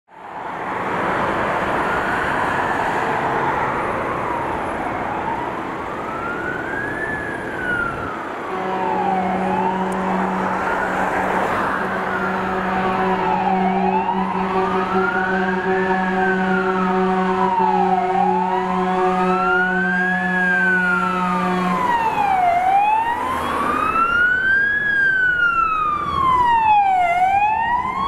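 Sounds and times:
traffic noise: 0.1s - 28.0s
electronic siren wailing: 1.6s - 28.0s
fire engine air horn blast: 8.4s - 22.1s.

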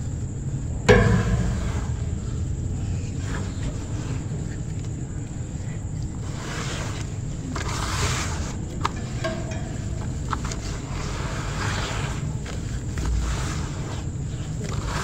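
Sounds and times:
steady low rumble: 0.0s - 6.0s.

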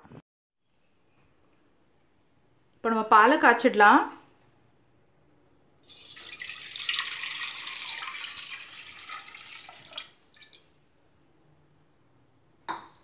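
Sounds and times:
milk pouring into metal pot: 5.8s - 10.7s
milk dripping: 5.8s - 10.8s.

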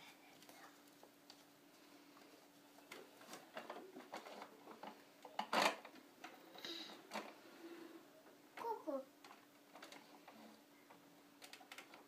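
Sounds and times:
plastic toy clatter: 9.2s - 10.1s
plastic toy cars clicking: 9.2s - 10.4s, 11.4s - 12.0s.

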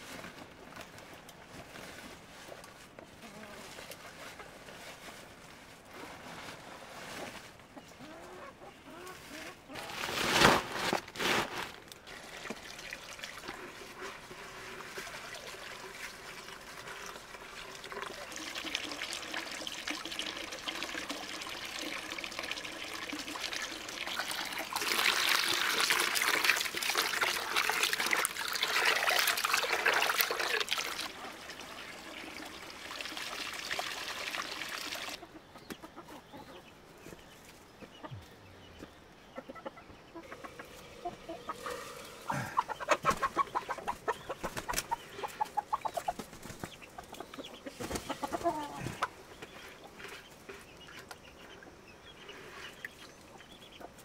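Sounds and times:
chickens clucking: 7.2s - 10.2s, 35.1s - 54.0s
water running into plastic bucket: 10.8s - 35.2s.

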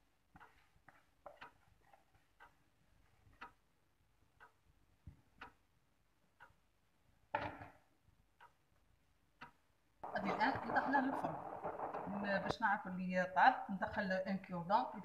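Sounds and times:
clock ticking: 0.0s - 15.0s.

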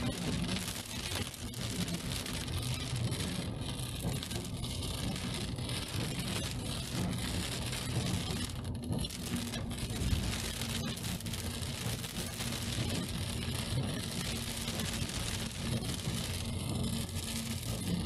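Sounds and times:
rain falling on car: 0.1s - 2.7s, 9.1s - 17.2s.

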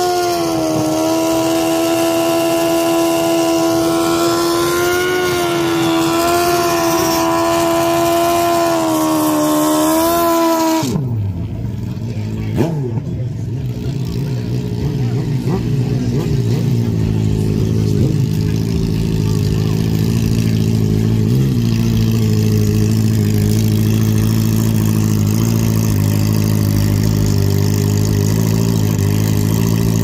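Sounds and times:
motorcycle engine revving high: 0.0s - 30.0s
motorcycle engine idling: 11.1s - 30.0s.

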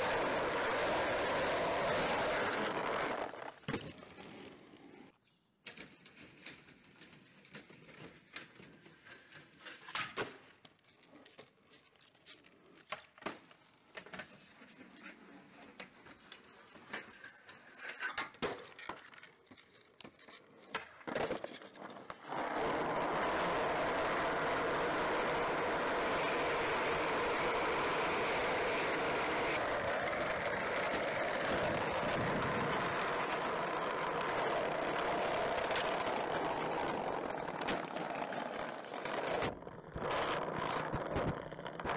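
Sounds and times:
skateboard clacks and knocks: 0.0s - 4.1s, 13.0s - 41.9s
skateboard wheels rolling on asphalt: 0.0s - 41.9s.

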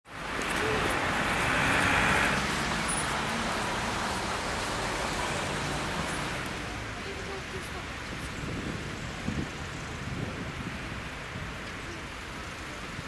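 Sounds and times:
traffic hum: 0.1s - 13.0s
car passing: 0.2s - 10.0s.

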